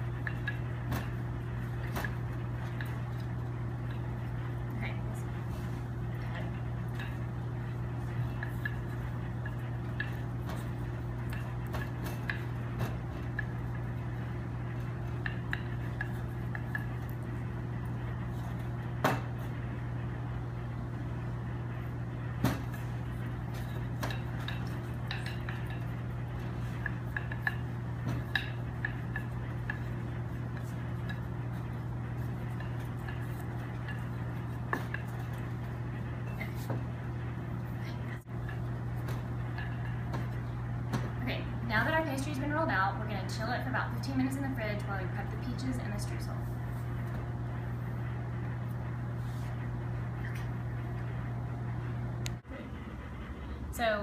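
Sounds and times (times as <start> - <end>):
rolling pin rolling dough: 0.0 - 43.0
steady low hum: 0.0 - 54.0.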